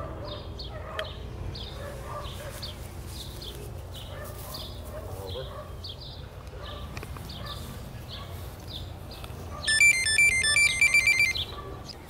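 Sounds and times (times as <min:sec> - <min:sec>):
bird chirps: 0:04.0 - 0:12.0
drone buzzer beeping tune: 0:09.7 - 0:11.4.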